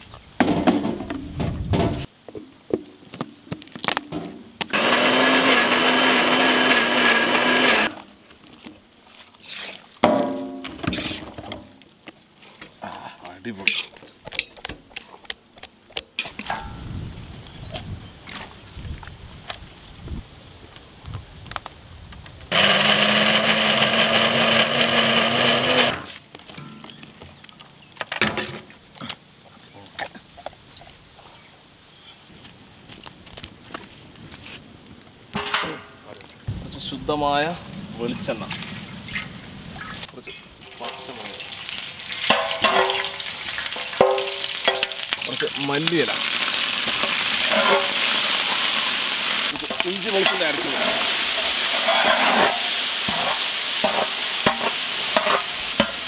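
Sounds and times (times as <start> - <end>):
mixer grinder running: 4.7 - 8.0, 22.5 - 26.1.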